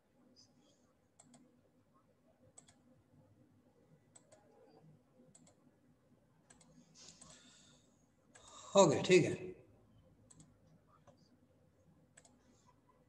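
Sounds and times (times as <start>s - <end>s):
faint computer mouse clicks: 1.2s - 1.5s, 2.6s - 2.8s, 5.3s - 5.6s, 6.5s - 7.4s, 10.3s - 11.2s, 12.1s - 12.4s.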